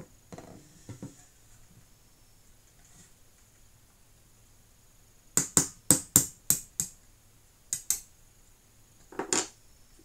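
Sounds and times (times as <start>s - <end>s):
sharp metal taps: 7.7s - 8.1s.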